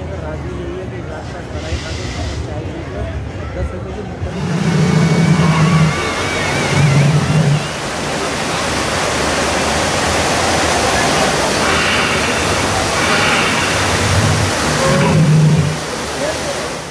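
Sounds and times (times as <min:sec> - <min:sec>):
spraying mist: 0:04.3 - 0:16.6
waterfall rushing: 0:04.3 - 0:16.9.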